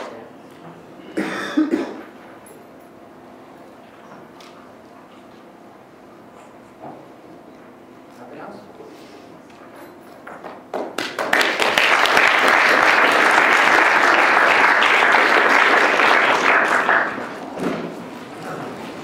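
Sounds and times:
audience applauding: 0:10.7 - 0:17.6.

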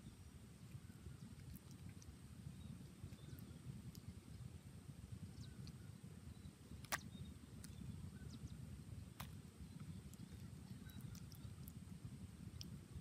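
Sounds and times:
faint high chirps: 0:00.0 - 0:04.5, 0:05.2 - 0:11.8
low outdoor rumble: 0:00.0 - 0:13.0.

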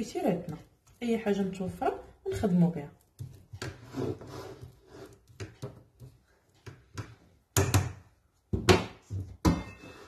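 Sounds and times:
kitchenware knocking and clunking: 0:06.8 - 0:10.0.

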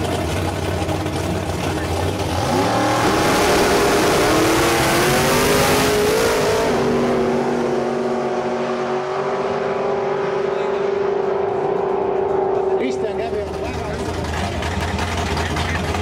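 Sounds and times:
drag car engines accelerating: 0:00.0 - 0:16.0.

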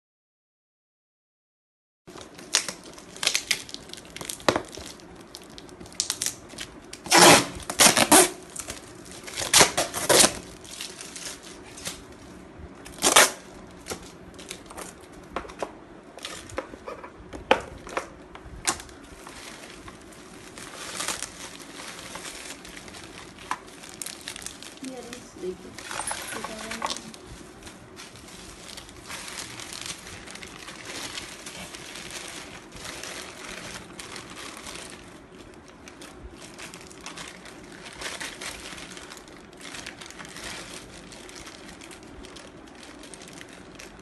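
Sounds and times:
bubble wrap crinkling: 0:02.1 - 0:44.0
packing tape ripping: 0:02.4 - 0:12.1, 0:12.8 - 0:15.0, 0:20.5 - 0:27.2.

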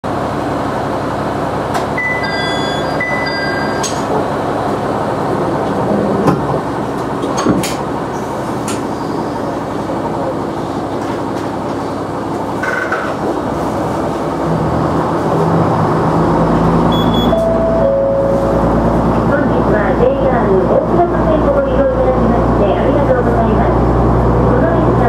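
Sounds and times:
two-tone electronic beep: 0:02.0 - 0:04.0, 0:16.9 - 0:18.6
diesel engine idling rumble: 0:13.2 - 0:25.0.

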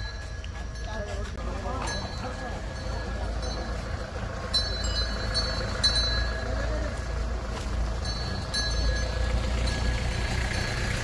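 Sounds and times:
faint voices: 0:00.0 - 0:07.9
traffic rumble: 0:00.0 - 0:11.0.

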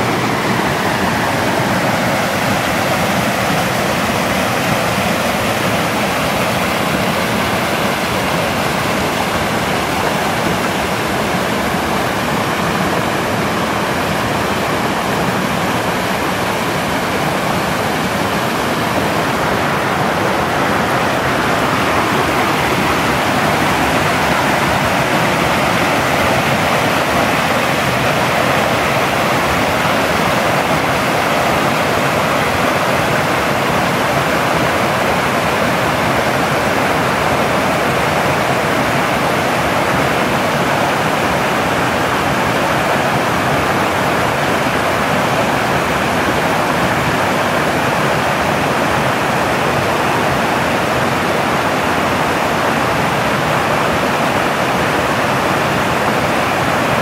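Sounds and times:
stream rushing over boulders: 0:00.0 - 0:57.0.

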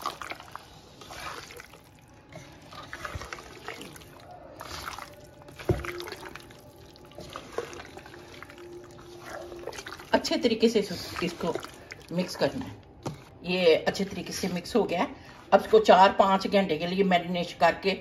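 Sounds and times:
hand squelching chicken in marinade: 0:00.0 - 0:12.3.

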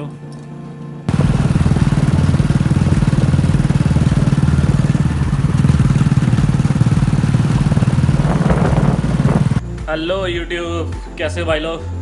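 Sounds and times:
motorcycle engine running: 0:01.1 - 0:09.6.

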